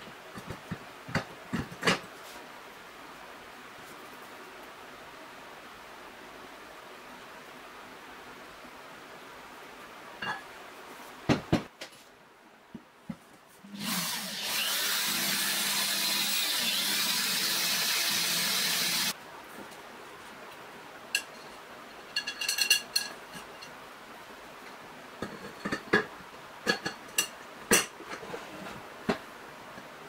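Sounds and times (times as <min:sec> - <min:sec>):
cordless drill boring through metal: 0:13.8 - 0:19.1.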